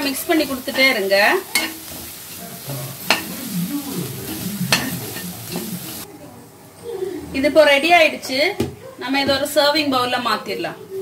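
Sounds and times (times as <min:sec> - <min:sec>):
cabbage sizzling in pan: 0:00.0 - 0:06.1
spatula scraping pan: 0:00.0 - 0:06.1.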